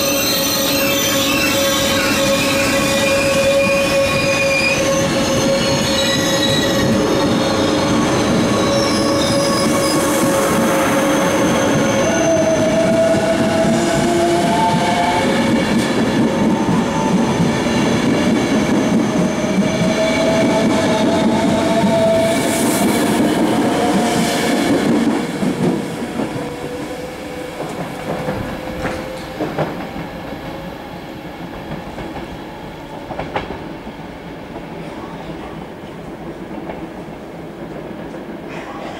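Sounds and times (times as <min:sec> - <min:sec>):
wheels squealing on rails: 0:00.0 - 0:24.8
electric train passing: 0:00.0 - 0:34.0.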